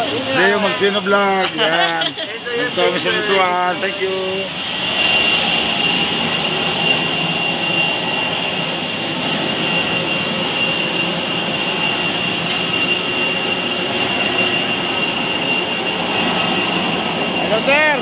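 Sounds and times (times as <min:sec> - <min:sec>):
aircraft engine whining: 0:00.0 - 0:18.0.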